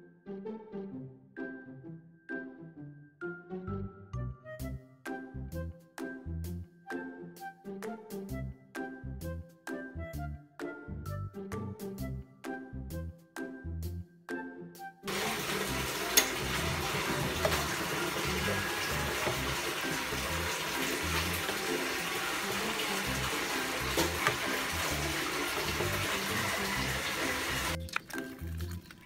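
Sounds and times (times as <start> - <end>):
syrup boiling and bubbling: 15.1 - 29.0.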